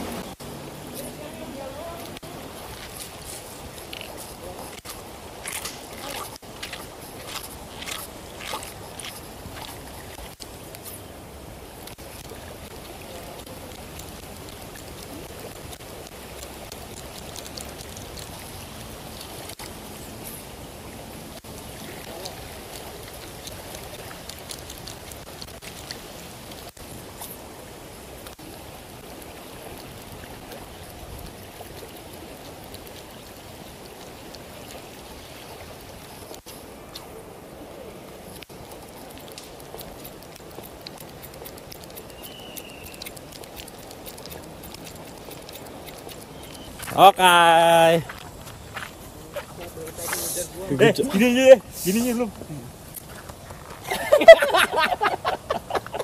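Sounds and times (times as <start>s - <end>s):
river water running over stones: 0.0s - 56.0s.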